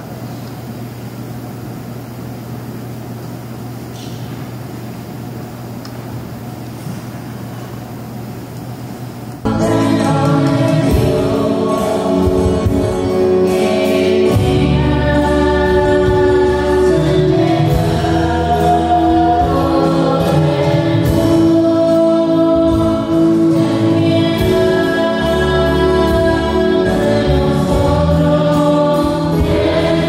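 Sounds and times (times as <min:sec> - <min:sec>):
choir singing religious music: 0:09.4 - 0:30.0.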